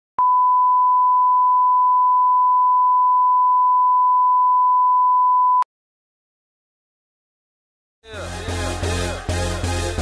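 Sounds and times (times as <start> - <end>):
steady test tone beep: 0.2 - 5.7.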